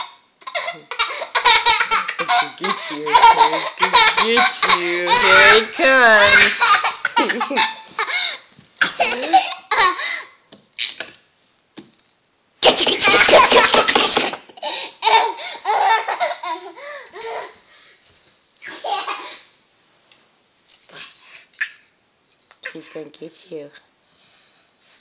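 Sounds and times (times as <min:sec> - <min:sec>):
toddler laughing: 0:00.0 - 0:10.2, 0:12.8 - 0:17.6.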